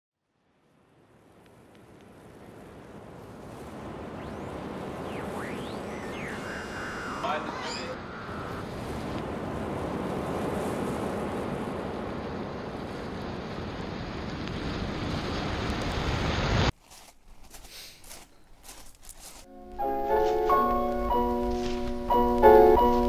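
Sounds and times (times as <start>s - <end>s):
steady rushing noise: 0.6s - 16.7s.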